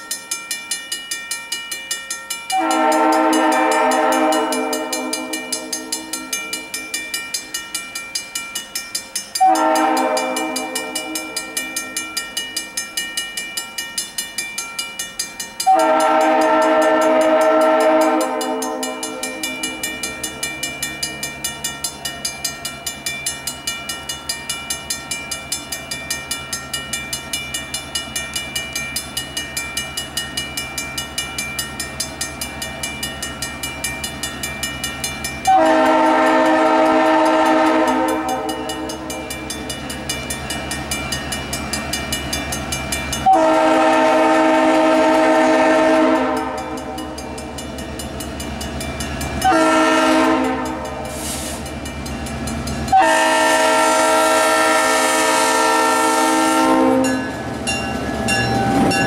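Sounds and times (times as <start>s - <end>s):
crossing bell ringing: 0.0s - 59.0s
locomotive horn blasts: 2.5s - 6.2s, 9.4s - 11.6s, 15.6s - 20.1s, 35.4s - 39.1s, 43.2s - 47.2s, 49.4s - 51.6s, 52.9s - 57.2s.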